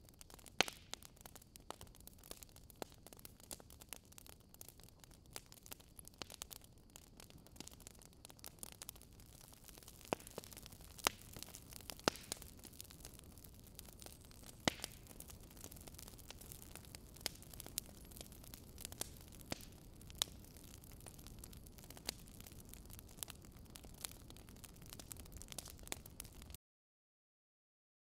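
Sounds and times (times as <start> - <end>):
crackling clicks and pops: 0.0 - 26.6.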